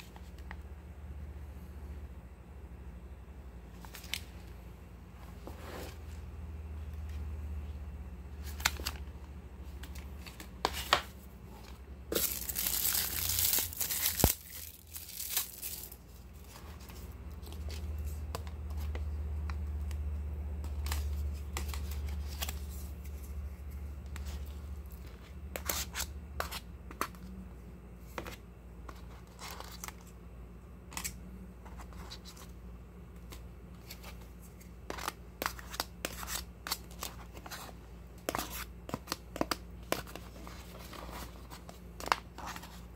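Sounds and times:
low steady hum: 0:00.0 - 0:42.9
plastic food wrapper crinkling: 0:12.1 - 0:16.2.

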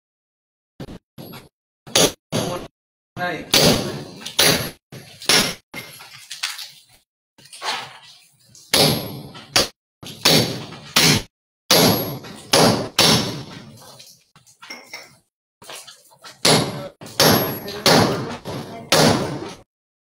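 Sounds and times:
hammer striking masonry wall: 0:00.9 - 0:02.7, 0:03.5 - 0:06.0, 0:08.7 - 0:13.8, 0:16.4 - 0:19.7.

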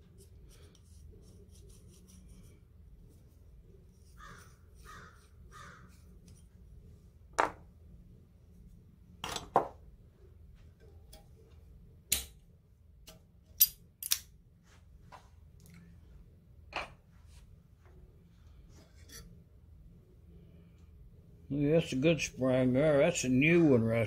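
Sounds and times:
metal tools clicking on workbench: 0:13.6 - 0:14.2.

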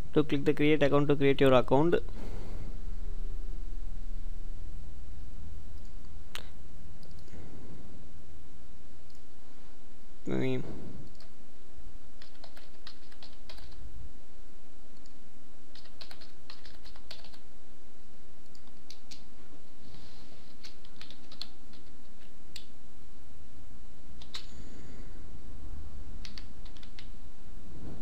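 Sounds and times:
typing on computer keyboard: 0:12.2 - 0:13.8, 0:15.7 - 0:17.4, 0:18.5 - 0:19.2, 0:20.6 - 0:22.7, 0:24.2 - 0:24.5, 0:26.2 - 0:27.1.

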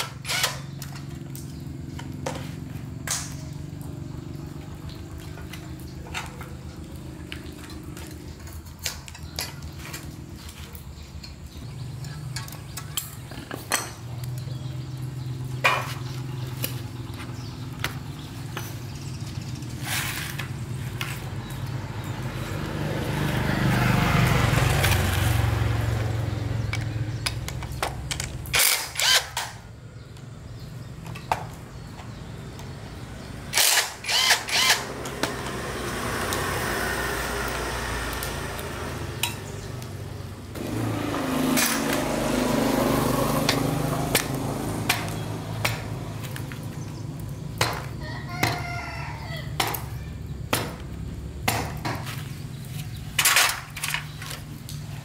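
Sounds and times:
sharp metallic clicks and knocks: 0:26.6 - 0:30.3.

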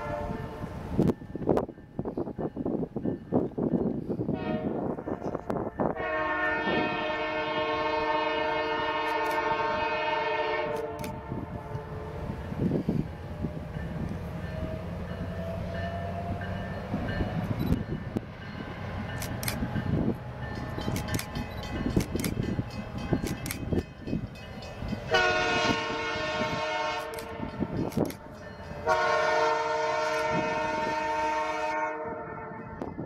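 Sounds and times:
locomotive air horn blasts: 0:00.0 - 0:00.8, 0:04.3 - 0:05.0, 0:05.8 - 0:12.3, 0:25.1 - 0:27.8, 0:28.8 - 0:32.9
diesel train rumble: 0:00.0 - 0:33.0.

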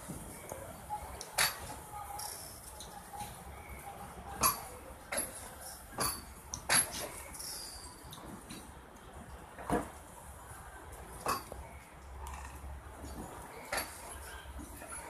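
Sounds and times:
train wheels clacking over rail joints: 0:04.4 - 0:08.7, 0:11.2 - 0:11.7, 0:12.3 - 0:15.0.

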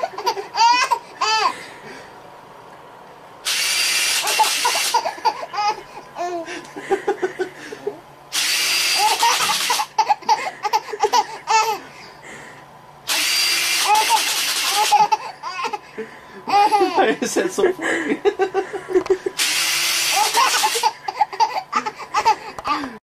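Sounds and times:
baby laughing: 0:00.0 - 0:01.6, 0:04.2 - 0:06.7, 0:09.0 - 0:11.9, 0:13.8 - 0:15.9, 0:16.5 - 0:17.2, 0:20.1 - 0:22.9
loud whirring hiss: 0:03.3 - 0:05.4, 0:06.5 - 0:10.0, 0:11.9 - 0:21.0.

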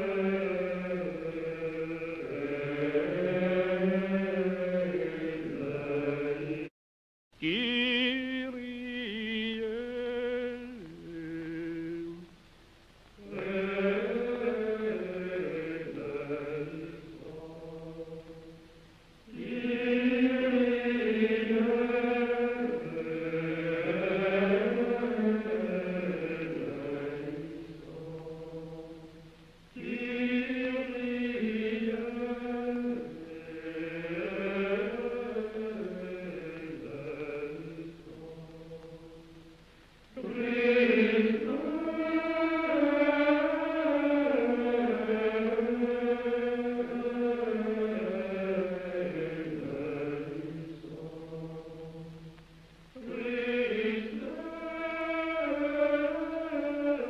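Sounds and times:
slow vocal chant: 0:00.0 - 0:06.7, 0:07.4 - 0:57.0.

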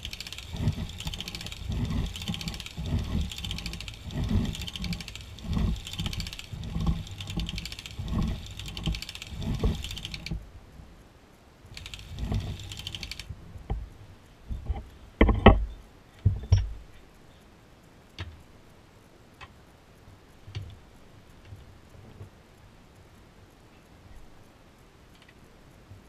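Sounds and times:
knitting machine clattering: 0:00.0 - 0:10.4, 0:11.8 - 0:13.3
faint ticks: 0:00.0 - 0:15.3, 0:16.5 - 0:26.0.

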